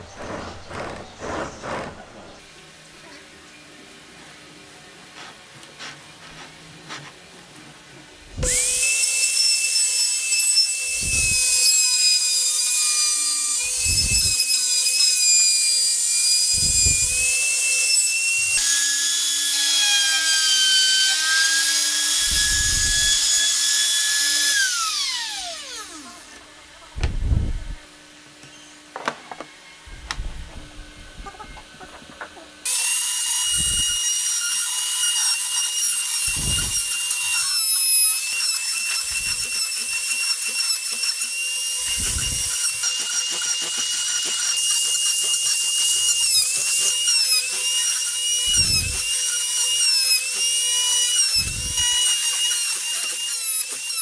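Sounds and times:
router whining cutting wood: 0:00.0 - 0:02.4, 0:08.4 - 0:27.8, 0:32.6 - 0:54.0
router winding down: 0:00.0 - 0:02.4, 0:08.4 - 0:09.4, 0:10.8 - 0:26.4, 0:32.7 - 0:54.0.

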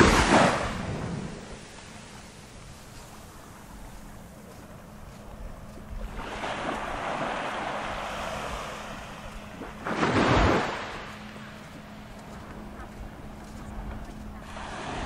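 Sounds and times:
faint steady hum: 0:00.0 - 0:15.0
waves washing onto beach: 0:00.0 - 0:15.0.

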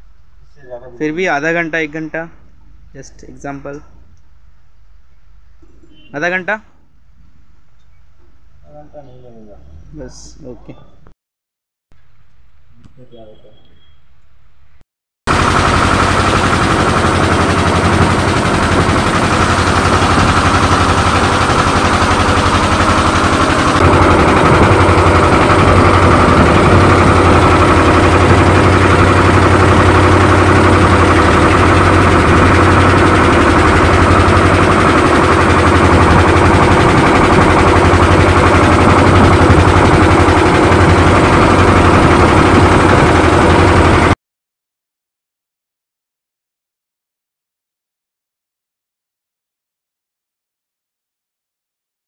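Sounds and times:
boat engines pulsing beat: 0:15.3 - 0:44.1.

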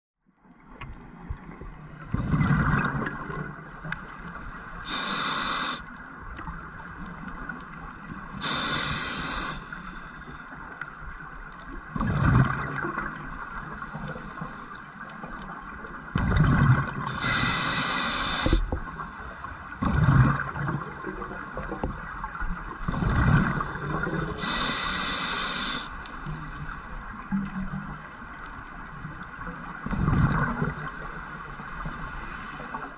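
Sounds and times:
exhaled bubbles rumbling: 0:01.4 - 0:03.6, 0:11.9 - 0:13.4, 0:16.1 - 0:17.2, 0:19.7 - 0:24.4, 0:29.8 - 0:30.9
regulator air hissing: 0:04.8 - 0:05.8, 0:08.4 - 0:09.8, 0:17.1 - 0:18.7, 0:24.4 - 0:25.9.

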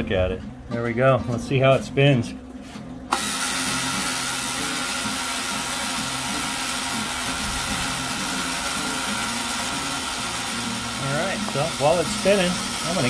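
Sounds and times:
clockwork rotisserie motor running: 0:03.1 - 0:13.0.

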